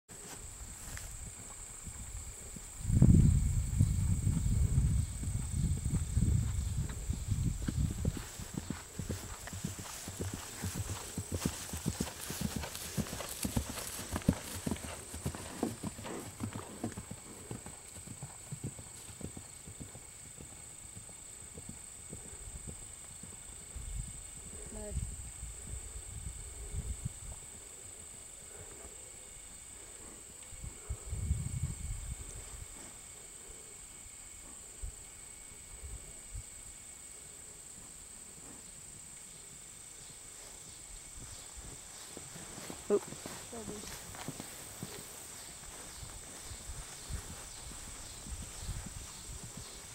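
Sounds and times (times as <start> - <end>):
horse hooves on turf: 0.1 - 23.7, 40.4 - 49.9
insects droning: 0.1 - 49.9.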